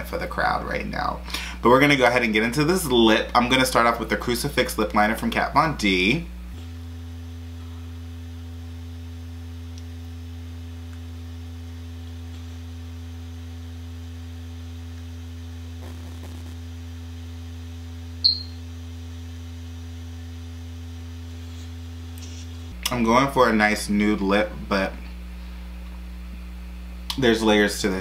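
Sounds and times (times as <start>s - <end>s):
low electrical hum: 0.0s - 28.0s
sharp high-pitched chirp: 18.2s - 18.6s.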